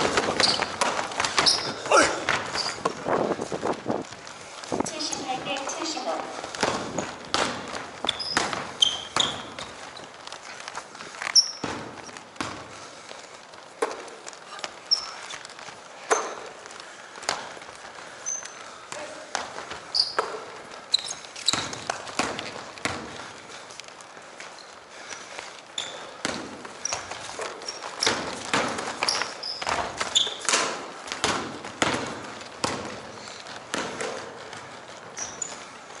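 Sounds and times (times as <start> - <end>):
sneakers squeaking on court: 0.0 - 3.1, 4.9 - 12.8, 13.8 - 16.6, 17.3 - 36.0.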